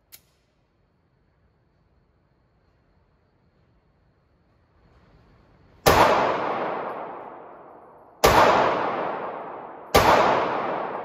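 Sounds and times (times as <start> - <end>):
pistol shots with echo: 5.8 - 11.0.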